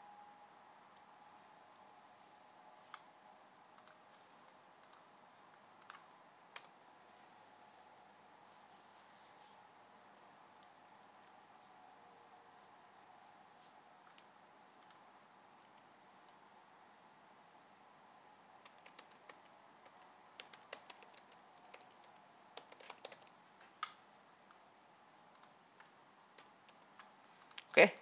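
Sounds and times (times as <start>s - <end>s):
low steady background hiss: 0.0s - 28.0s
computer keyboard typing: 3.8s - 6.8s, 14.0s - 16.4s, 18.6s - 24.0s.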